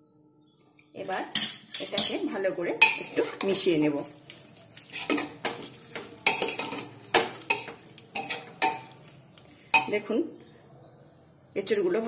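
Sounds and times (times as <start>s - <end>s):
metal spoon scraping a pot: 1.4s - 10.0s.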